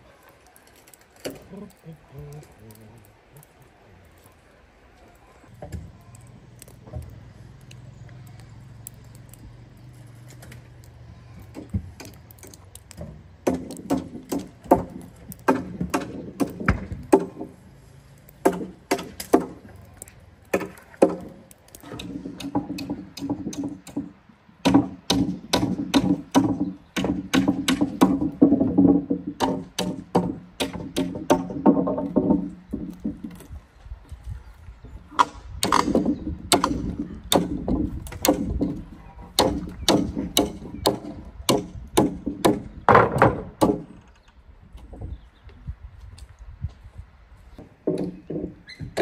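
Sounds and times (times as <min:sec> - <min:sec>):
wood being struck: 0:11.5 - 0:17.6, 0:18.4 - 0:19.7, 0:20.5 - 0:33.5, 0:35.1 - 0:44.2, 0:47.6 - 0:49.0.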